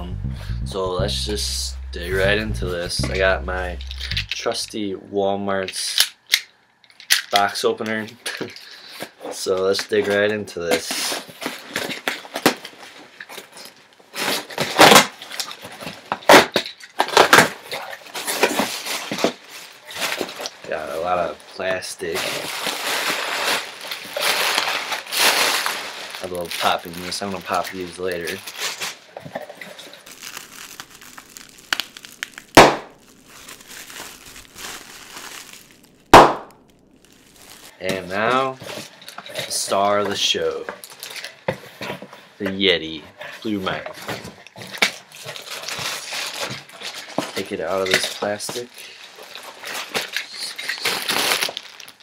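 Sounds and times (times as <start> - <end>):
plastic packing crinkling: 11.0 - 42.1, 44.0 - 52.0
plastic packing popping: 22.4 - 37.8.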